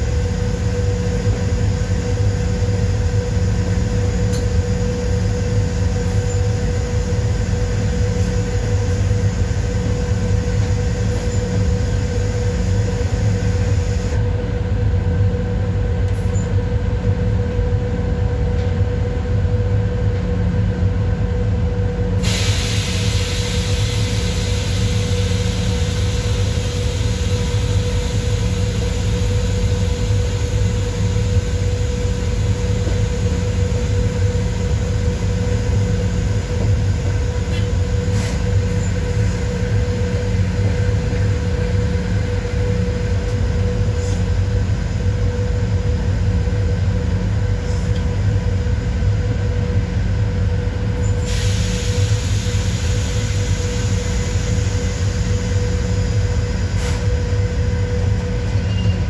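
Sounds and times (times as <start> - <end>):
locomotive low rumble and hum: 0.0 - 59.0
hiss: 22.2 - 40.8, 51.1 - 57.4.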